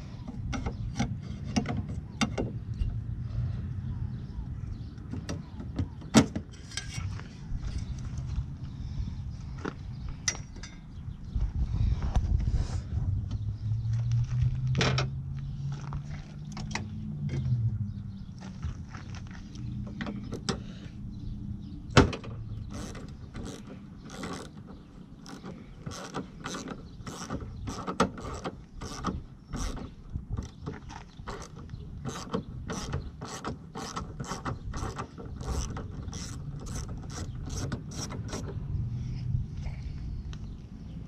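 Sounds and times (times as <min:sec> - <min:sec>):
hand ratchet clicking: 0:22.7 - 0:24.6, 0:25.3 - 0:29.8.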